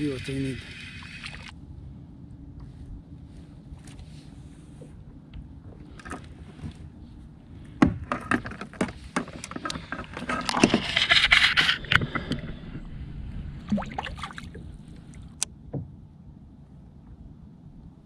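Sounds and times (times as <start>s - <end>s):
water splashing: 0.0s - 1.5s, 13.6s - 15.4s
knocks and clatter on kayak: 7.8s - 12.8s, 15.7s - 16.0s.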